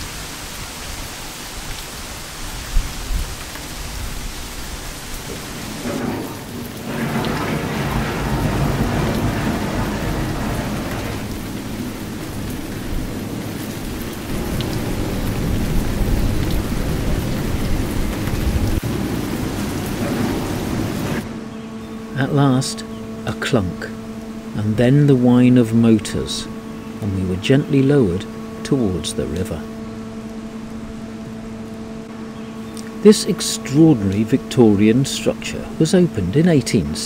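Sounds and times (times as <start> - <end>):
rain on iron structure: 0.0 - 37.0
low rumble: 2.5 - 23.2.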